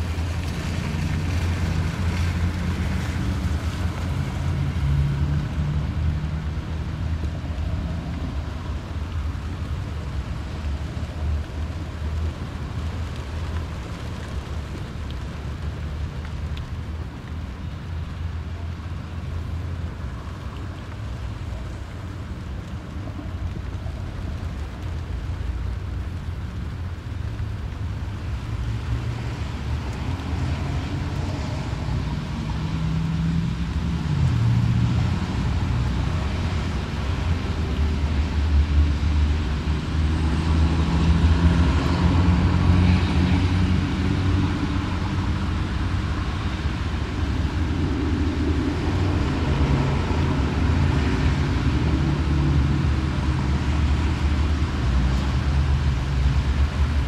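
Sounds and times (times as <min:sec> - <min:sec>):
road traffic passing in rain: 0:00.0 - 0:57.0
tyres and engines rumbling: 0:00.0 - 0:57.0.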